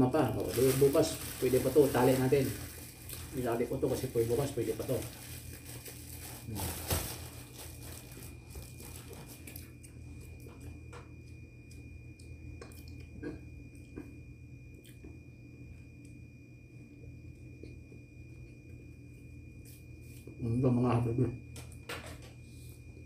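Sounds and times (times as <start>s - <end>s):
plastic bag crinkling: 0.0s - 9.7s
small clicks and rustles of eating: 2.7s - 6.5s, 7.4s - 16.2s.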